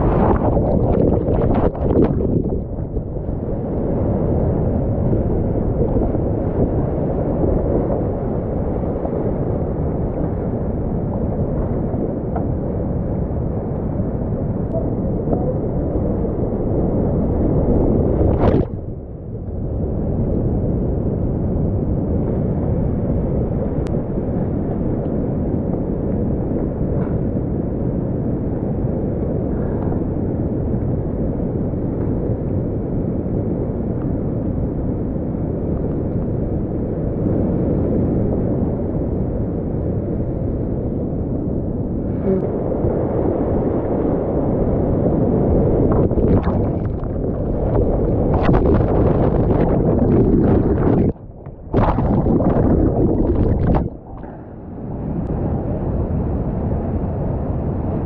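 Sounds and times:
water splashing on camera: 0.0 - 3.2, 17.7 - 18.9, 45.8 - 54.4.

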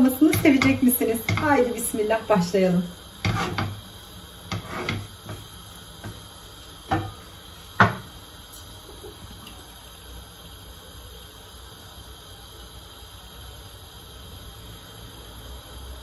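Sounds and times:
faint steady hiss: 0.0 - 16.0
cookware knocks and clatters: 6.9 - 7.2.

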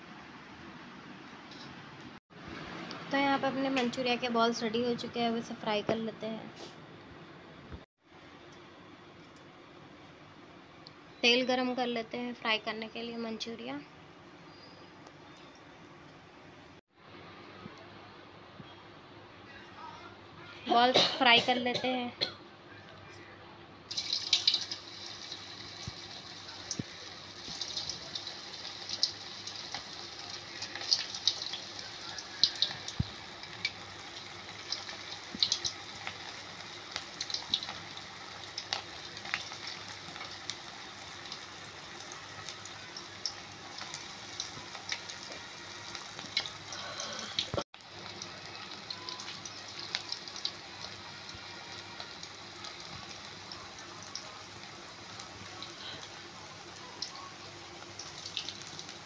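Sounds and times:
hot oil sizzling and popping: 23.9 - 59.0.

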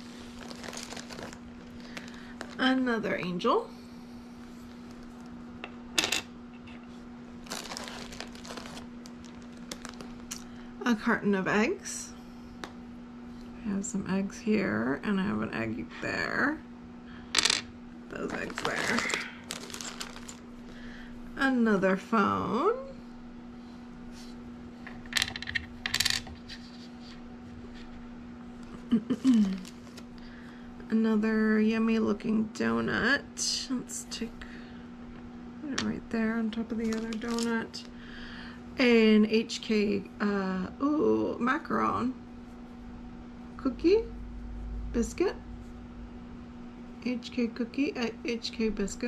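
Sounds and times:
faint steady hum: 0.0 - 49.0
resin charms clicking and rattling: 18.5 - 20.4.

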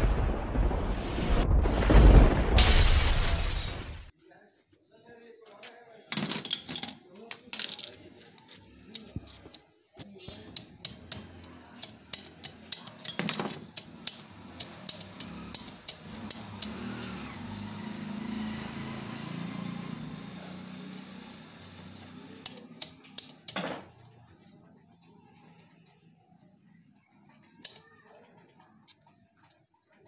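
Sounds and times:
metallic taps and clicks: 10.3 - 16.8, 20.5 - 24.2.

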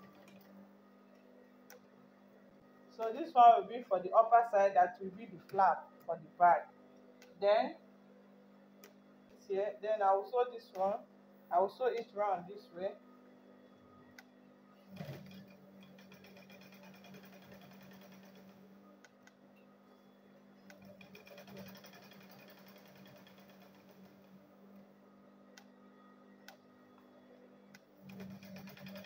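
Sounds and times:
sewing machine stitching: 0.0 - 0.5, 14.8 - 18.7, 20.6 - 24.4, 28.0 - 29.0.

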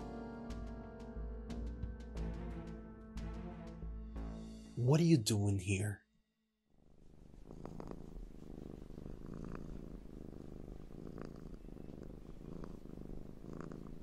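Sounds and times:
cat purring: 6.8 - 14.0.

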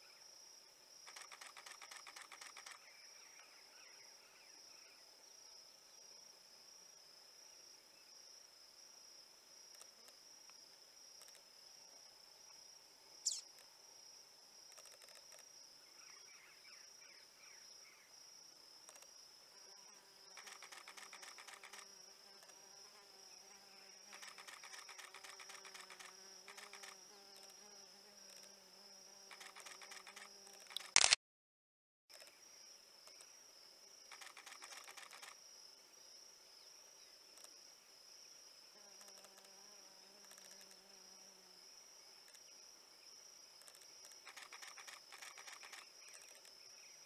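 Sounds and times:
low insect buzz: 0.0 - 31.0, 32.1 - 47.0
rapid clicking trills: 1.1 - 2.8, 20.4 - 21.8, 24.1 - 27.0, 29.3 - 31.0
high-pitched insect drone: 1.1 - 3.0, 13.2 - 13.5, 20.3 - 31.0.

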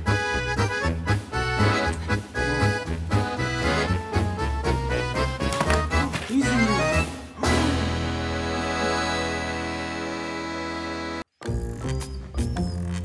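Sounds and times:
instrumental music with bass beat: 0.0 - 6.0.

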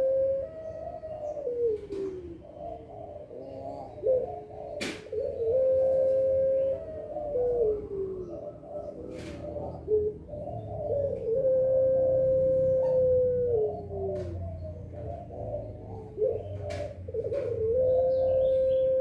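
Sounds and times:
dove cooing: 0.0 - 19.0.

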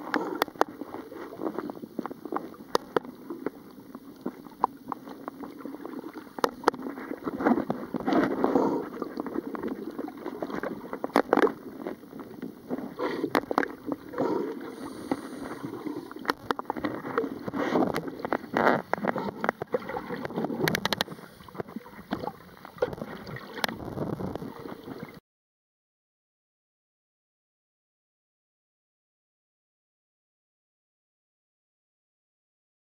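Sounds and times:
water gurgling and sloshing: 0.0 - 25.2.

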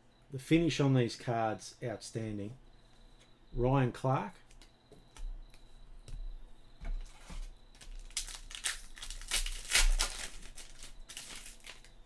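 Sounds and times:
foil wrapper crinkling and tearing: 7.7 - 12.0.

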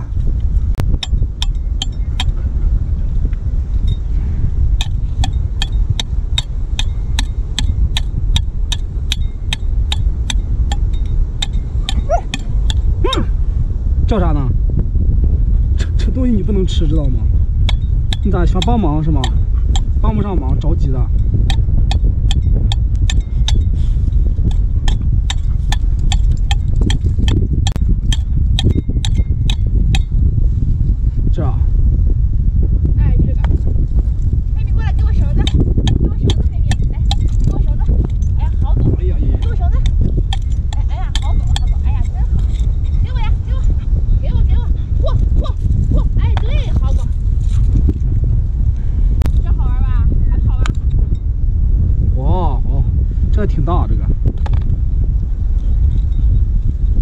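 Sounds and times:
low rumble: 0.0 - 57.0
hand pick tapping rock: 24.4 - 30.1, 35.4 - 37.4.

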